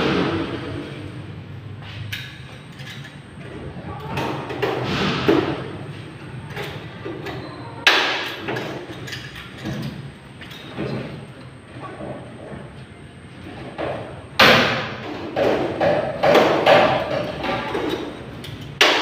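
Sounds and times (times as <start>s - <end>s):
metal workpieces clanking on concrete: 2.0s - 3.4s, 6.4s - 11.0s, 15.0s - 19.0s.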